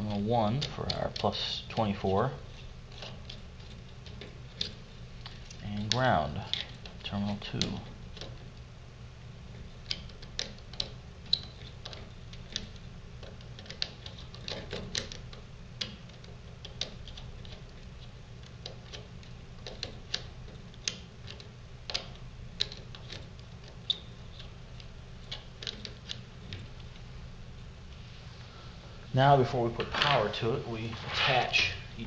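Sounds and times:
screwdriver turning a screw: 0.1s - 8.4s, 9.8s - 26.9s.

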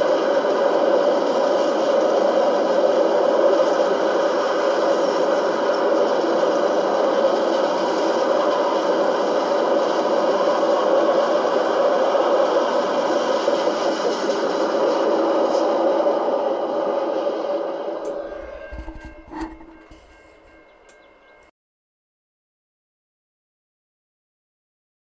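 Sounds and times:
freight train wheels on rails: 0.0s - 21.5s.

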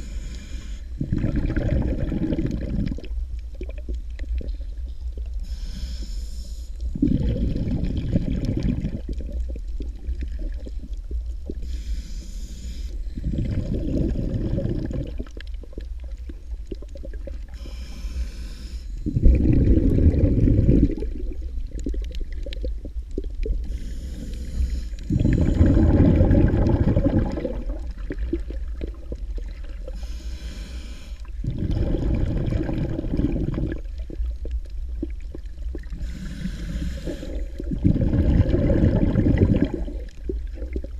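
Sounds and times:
breathing through a snorkel: 0.0s - 1.3s, 5.4s - 8.7s, 11.6s - 15.0s, 17.5s - 21.0s, 23.6s - 27.6s, 29.8s - 33.8s, 35.9s - 40.0s
low underwater rumble: 0.0s - 40.9s.

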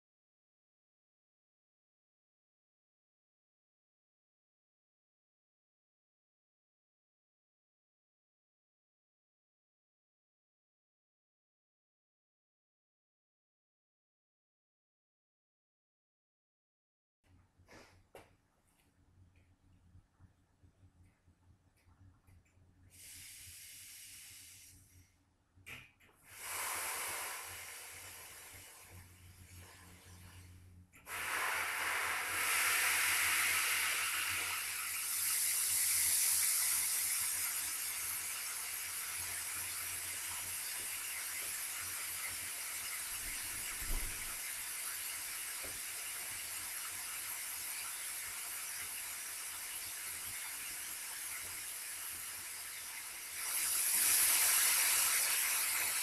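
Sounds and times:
refrigerant hissing from pipe: 22.9s - 25.0s, 26.2s - 56.0s.

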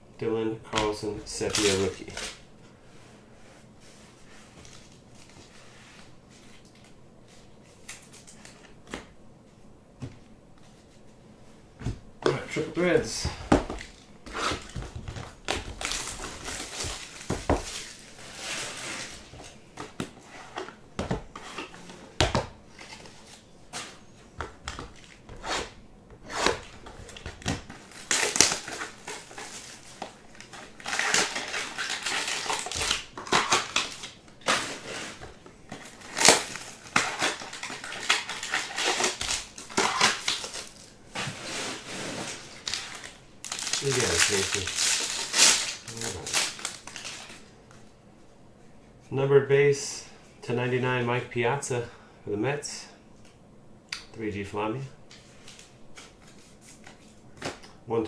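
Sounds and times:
plastic wrap crackling and rustling: 12.5s - 20.2s, 26.3s - 47.5s.

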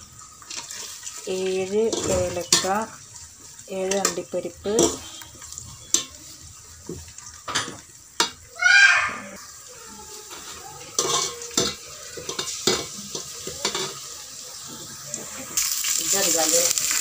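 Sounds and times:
food sizzling in a pan: 0.0s - 17.0s
spatula scraping a pan: 0.4s - 6.4s, 10.2s - 14.1s.

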